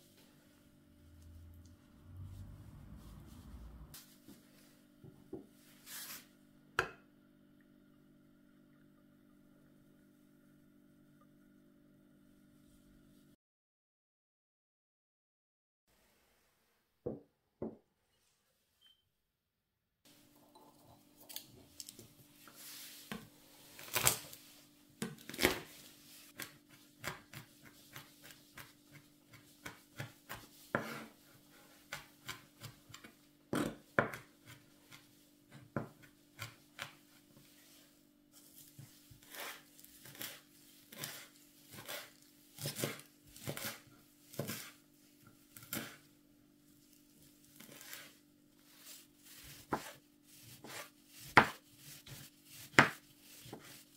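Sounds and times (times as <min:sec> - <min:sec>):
knife chopping on cutting board: 0:26.4 - 0:31.1, 0:31.9 - 0:37.0, 0:39.2 - 0:44.8, 0:45.6 - 0:46.0, 0:49.4 - 0:53.8.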